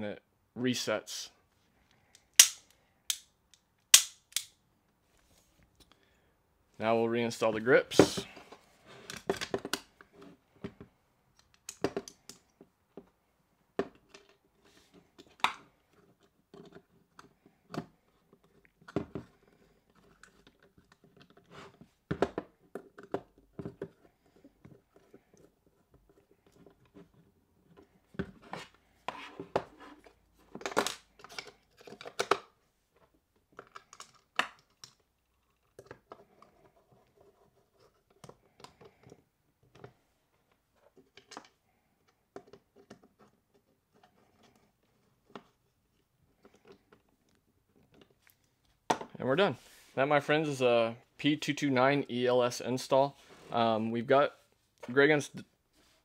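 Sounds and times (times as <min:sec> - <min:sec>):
pistol grip parts clicking: 0:02.1 - 0:04.6.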